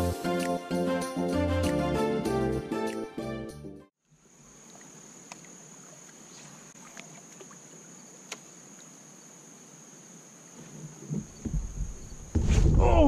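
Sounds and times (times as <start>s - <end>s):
music: 0.0s - 3.9s
insect drone: 4.0s - 13.0s.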